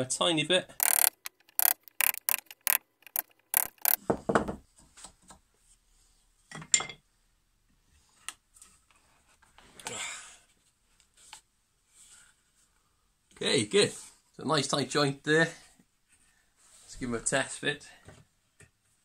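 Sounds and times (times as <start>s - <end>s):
chisel cutting wood: 0.8s - 4.0s.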